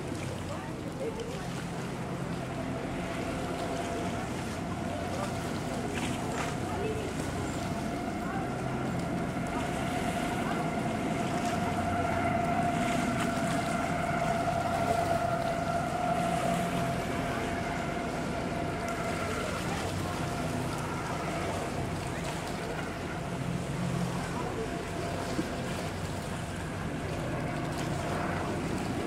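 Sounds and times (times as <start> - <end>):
motorboat engine whine: 0.0 - 29.0
water and wind noise: 0.0 - 29.0.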